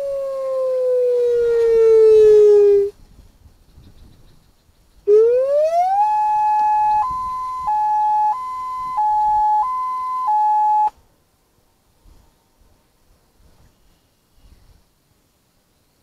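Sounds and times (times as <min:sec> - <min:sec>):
hi-lo siren tone: 0:05.1 - 0:10.9.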